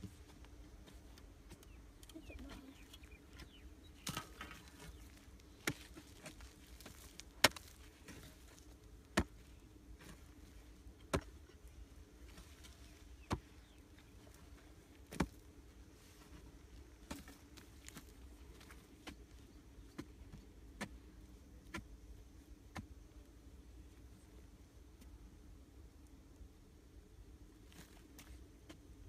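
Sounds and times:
hoe striking hard earth: 0:03.4 - 0:09.4, 0:11.0 - 0:11.5.

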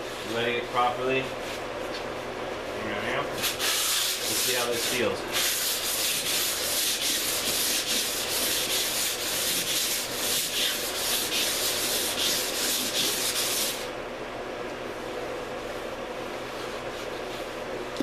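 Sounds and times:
sandpaper rubbing by hand: 0:03.4 - 0:13.9.

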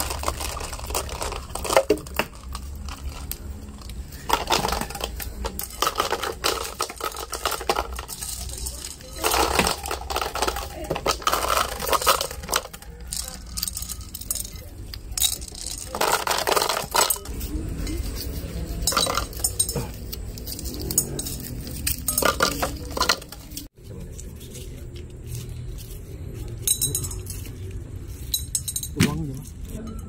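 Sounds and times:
plastic bottles knocking: 0:00.0 - 0:14.5, 0:15.2 - 0:17.3
candies clattering into plastic bottle: 0:00.0 - 0:17.5, 0:18.1 - 0:23.7.

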